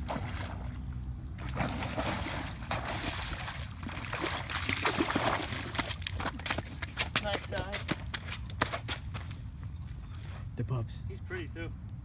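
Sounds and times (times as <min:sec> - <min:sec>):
fish thrashing and splashing in water: 0:00.0 - 0:07.0.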